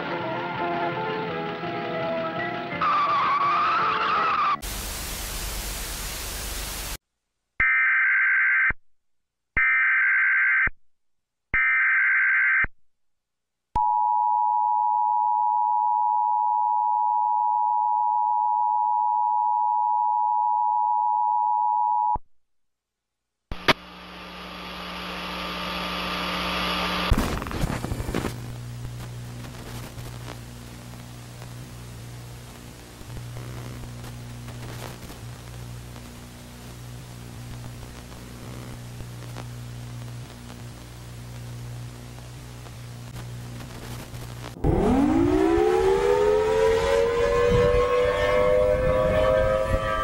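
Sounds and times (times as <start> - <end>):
distorted video tape hiss: 0.0 - 7.0, 23.5 - 45.2
loud static burst: 2.8 - 7.0, 23.6 - 46.4.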